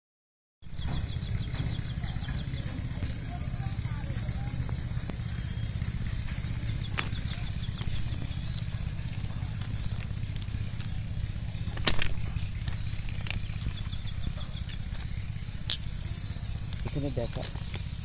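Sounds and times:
steady low rumble: 0.7s - 18.0s
stones clicking together: 11.8s - 13.5s, 15.6s - 16.0s.

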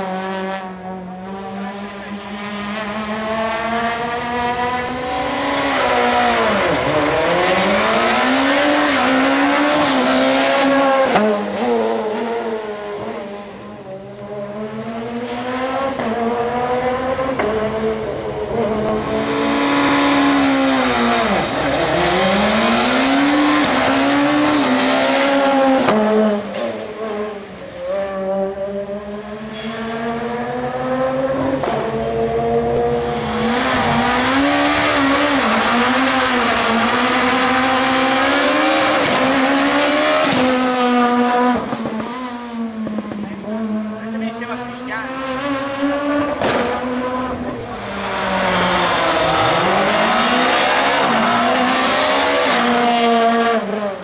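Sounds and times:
rally car engines revving: 0.0s - 54.0s.

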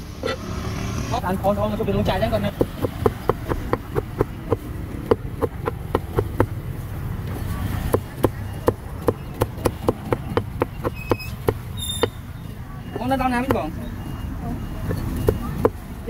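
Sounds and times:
cleaver chopping on wooden block: 2.5s - 6.6s, 7.9s - 12.2s.

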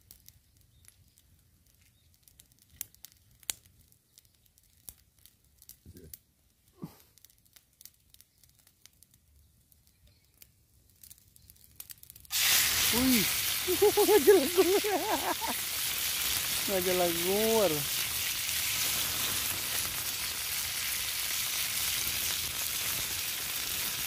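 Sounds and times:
greens sizzling in hot oil: 0.0s - 1.2s, 11.8s - 24.0s
wood fire crackling: 0.0s - 24.0s.

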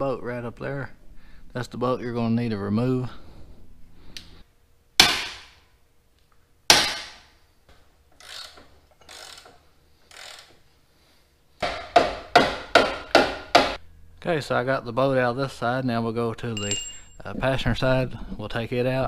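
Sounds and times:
sharp metallic cracks: 5.0s - 5.6s, 6.7s - 7.3s
ratchet clicking: 8.2s - 10.6s.

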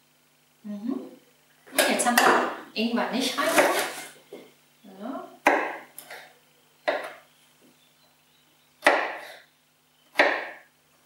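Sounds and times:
knife chopping on wooden board: 3.5s - 4.0s, 5.4s - 6.2s, 6.9s - 7.2s, 8.8s - 9.4s, 10.1s - 10.6s.

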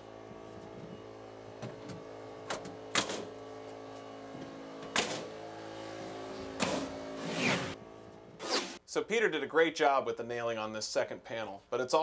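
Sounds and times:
nail gun shots: 2.5s - 3.3s, 4.9s - 5.3s, 6.6s - 6.9s.

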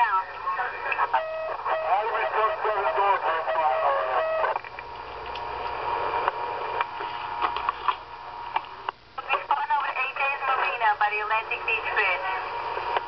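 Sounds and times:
garbled radio voice: 0.0s - 4.5s
radio static with whine: 0.0s - 13.0s.

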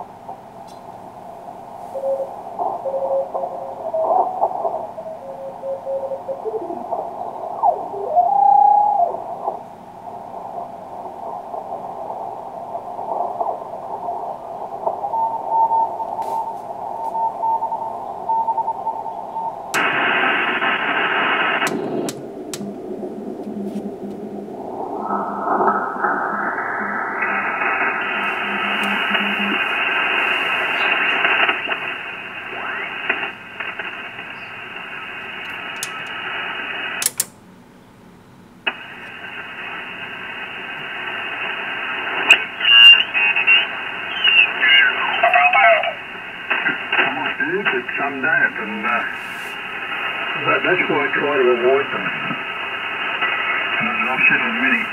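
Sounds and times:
radio static: 0.0s - 37.2s, 38.6s - 54.9s
morse code tone: 1.9s - 7.0s.

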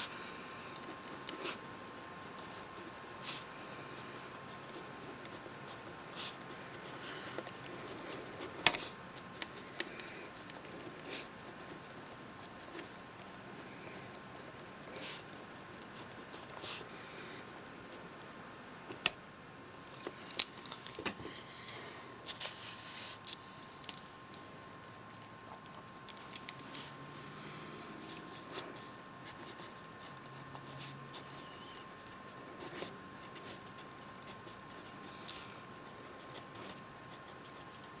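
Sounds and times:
pen scratching on paper: 0.8s - 1.6s, 2.4s - 14.2s, 14.9s - 16.9s, 28.0s - 38.0s.

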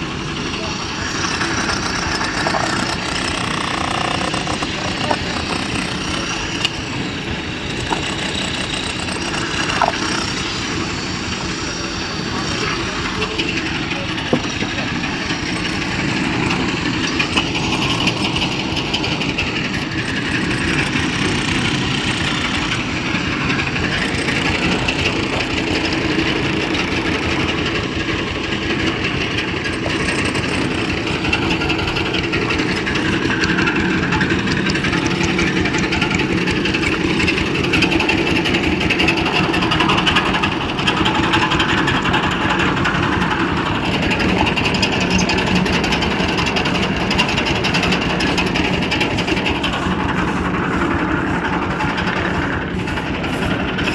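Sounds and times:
engine running steadily: 0.0s - 53.9s
noisy background: 0.0s - 53.9s.

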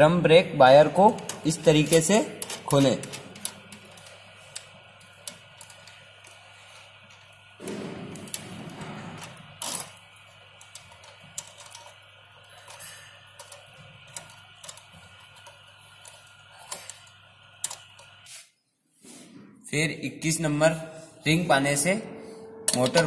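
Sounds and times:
metallic clicks and rattles of tools: 1.1s - 6.4s, 7.1s - 10.0s, 10.6s - 18.2s.

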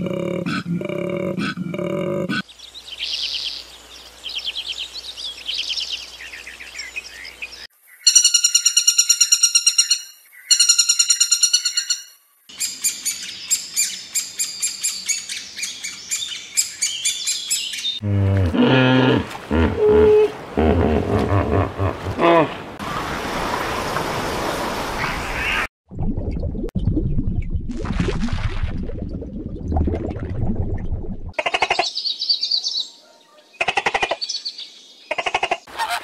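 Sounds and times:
woodpecker calls: 8.0s - 18.0s, 35.1s - 36.0s
koala bellowing: 18.0s - 22.7s.

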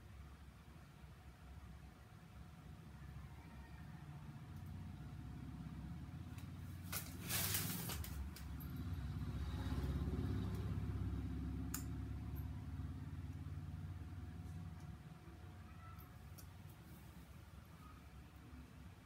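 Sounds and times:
vehicle engine droning: 4.2s - 16.0s
short rustle: 6.7s - 8.6s.

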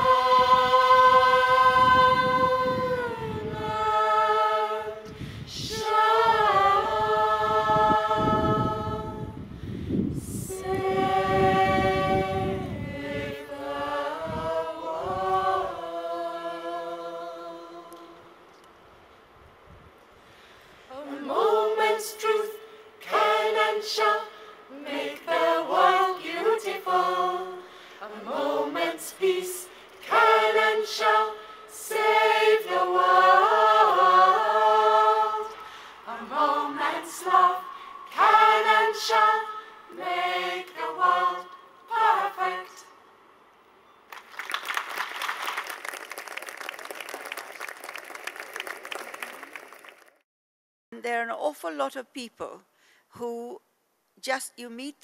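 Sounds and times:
mixed choir singing: 0.0s - 9.4s, 10.2s - 18.3s, 20.9s - 43.0s
audience applauding: 44.1s - 50.2s.

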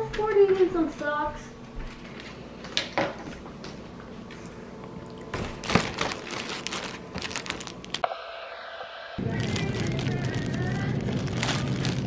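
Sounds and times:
cellophane bags crinkling: 5.4s - 8.0s, 9.2s - 12.0s.

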